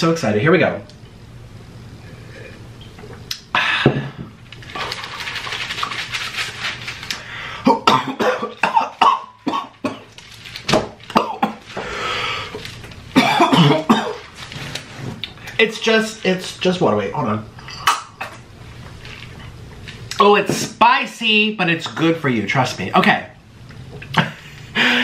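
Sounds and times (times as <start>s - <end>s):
man coughing: 7.6s - 10.1s, 11.1s - 11.6s, 13.2s - 14.2s
raspy breath: 11.7s - 12.6s, 24.8s - 25.0s.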